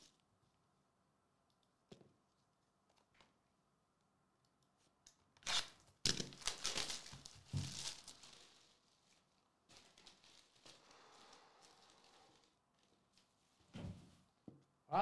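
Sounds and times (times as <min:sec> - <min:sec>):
tearing and crinkling wrap: 0:05.4 - 0:13.6.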